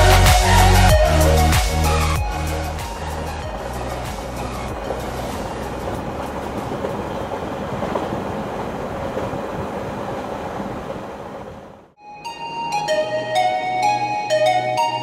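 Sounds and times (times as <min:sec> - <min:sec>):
train rumbling on rails: 0:01.3 - 0:12.0.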